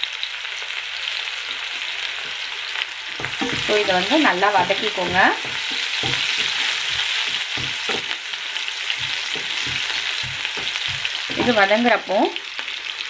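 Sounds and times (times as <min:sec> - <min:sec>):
onions sizzling in a pan: 0:00.0 - 0:13.0
spatula scraping and knocking pan: 0:03.1 - 0:11.9.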